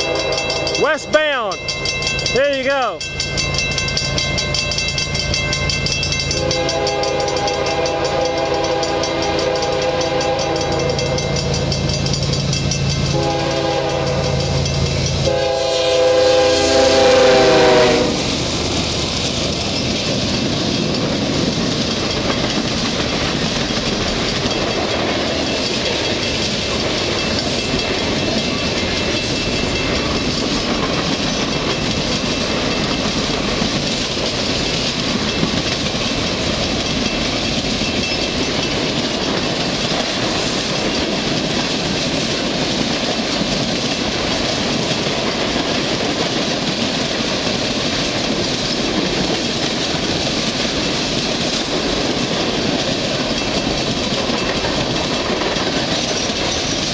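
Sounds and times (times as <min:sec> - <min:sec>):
locomotive air horn blasts: 0:00.0 - 0:01.1, 0:06.3 - 0:11.2, 0:13.1 - 0:14.5, 0:15.2 - 0:18.3
locomotive engine running: 0:00.0 - 0:46.8
freight cars rolling on rails: 0:00.0 - 0:56.9.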